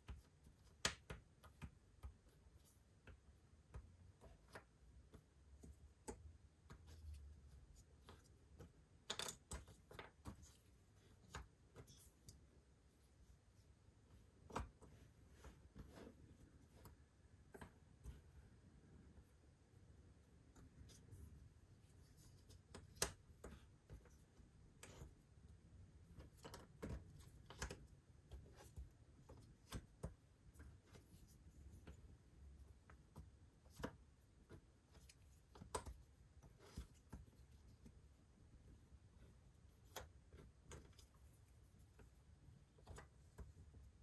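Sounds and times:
puzzle pieces clicking and tapping: 8.1s - 10.5s.

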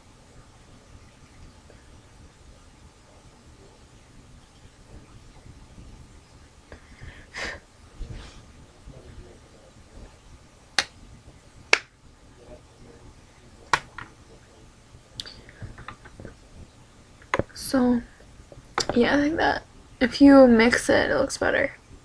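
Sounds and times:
soft rustle: 0.3s - 11.4s.

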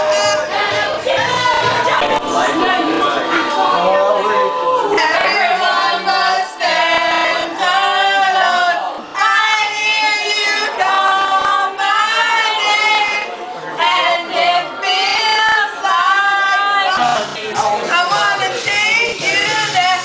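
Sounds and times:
women singing pop song together: 0.0s - 20.0s.

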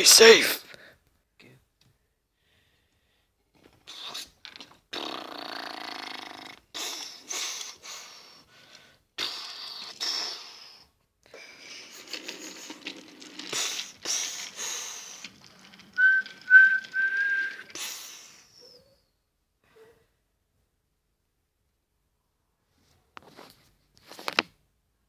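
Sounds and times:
mouth hissing puffs: 3.8s - 18.7s
whistled toots: 15.6s - 19.1s.

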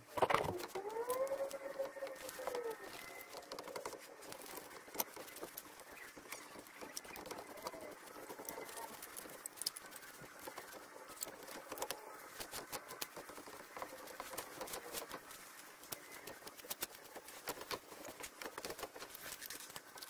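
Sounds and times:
small clicks and scratches: 0.0s - 20.0s.

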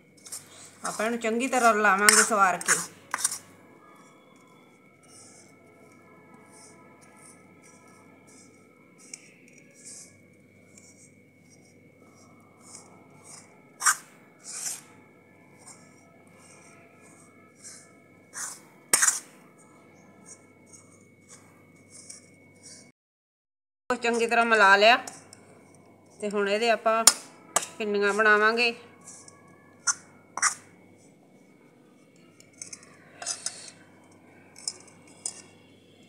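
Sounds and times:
spoon scraping crumbly mixture: 0.0s - 19.4s, 24.0s - 36.0s
spoon clinking against pan: 34.6s - 35.7s.

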